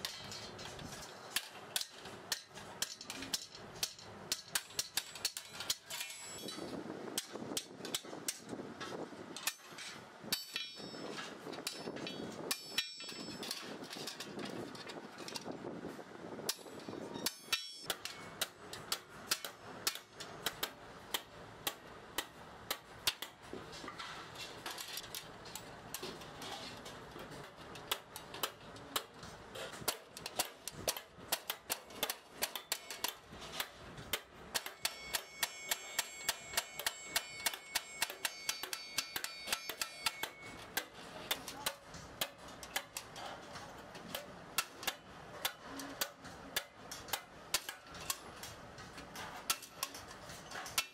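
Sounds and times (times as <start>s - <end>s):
metal ringing with high tones: 5.9s - 6.6s, 10.3s - 13.7s, 16.5s - 18.4s, 34.6s - 40.7s
light hammer strikes on metal: 27.8s - 48.5s.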